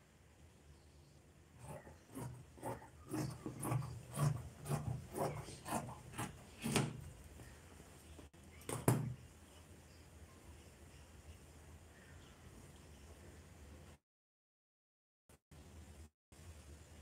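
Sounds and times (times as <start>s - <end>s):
scissors cutting fabric: 1.6s - 7.0s.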